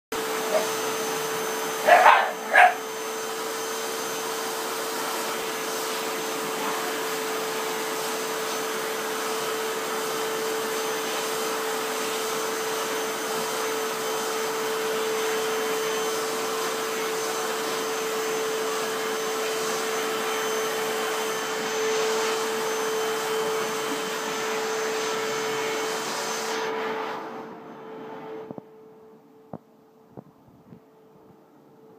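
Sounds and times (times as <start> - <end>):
vacuum cleaner humming: 0.1 - 29.6
dog barking: 0.4 - 0.8, 1.8 - 2.9.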